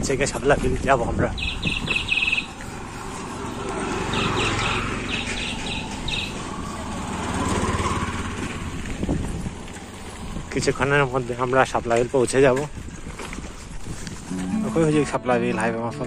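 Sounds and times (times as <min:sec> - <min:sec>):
wind and tyres rumbling: 0:00.0 - 0:15.2
high chirps: 0:01.4 - 0:06.9
auto-rickshaw engine passing: 0:01.4 - 0:12.1.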